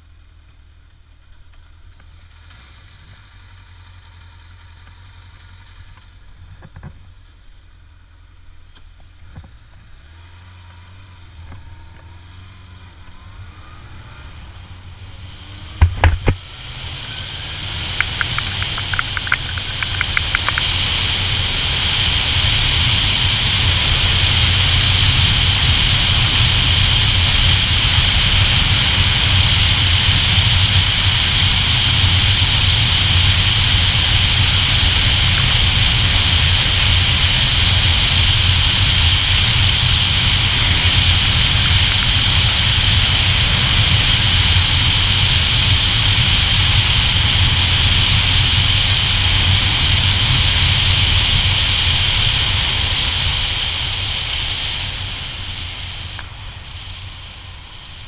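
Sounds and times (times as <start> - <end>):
motorcycle engine rumble: 0.0 - 58.0
wind rushing over microphone: 15.3 - 58.0.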